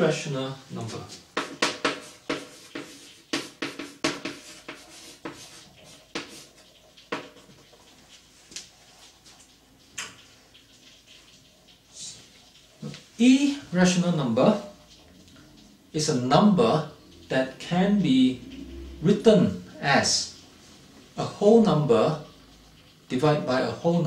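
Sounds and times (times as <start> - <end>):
chalk tapping and scratching: 1.1 - 8.6.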